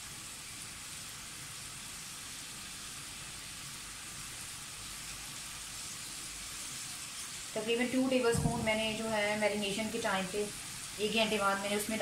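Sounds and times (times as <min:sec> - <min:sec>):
chicken sizzling on a griddle: 0:00.0 - 0:12.0.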